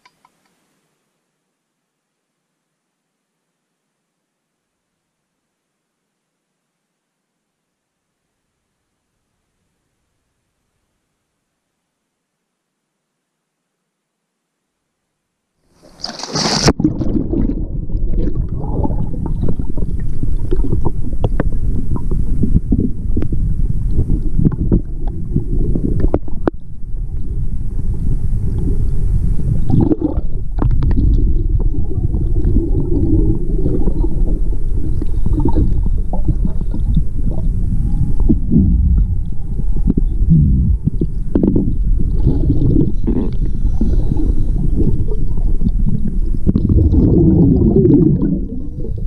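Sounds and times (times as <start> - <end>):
small clicks: 0.0 - 0.6
air bubbles gurgling underwater: 16.6 - 49.0
dense low rumble: 16.8 - 49.0.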